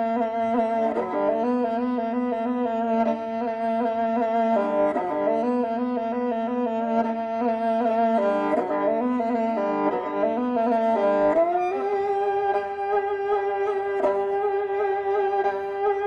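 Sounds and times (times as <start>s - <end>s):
bowed fiddle melody over drone: 0.0s - 16.0s.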